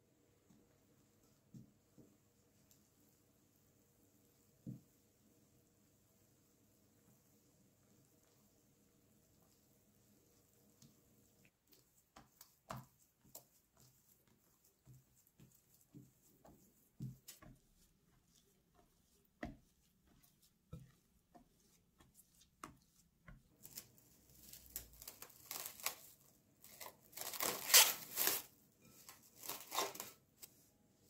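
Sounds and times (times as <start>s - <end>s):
hands kneading sticky dough: 6.1s - 31.0s
cling film crinkling: 23.6s - 28.5s, 29.4s - 30.2s.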